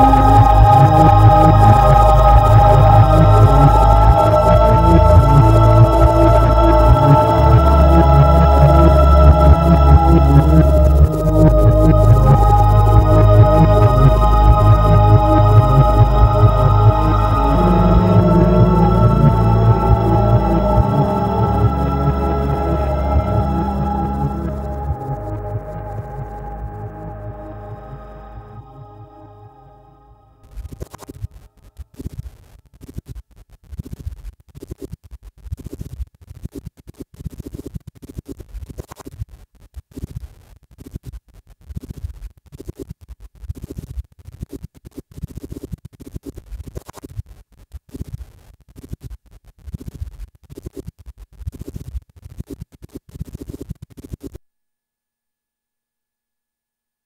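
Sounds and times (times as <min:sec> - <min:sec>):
scratchy crackling noise: 0:00.0 - 0:28.6, 0:30.4 - 0:54.5
pulsing low throb: 0:00.0 - 0:30.9.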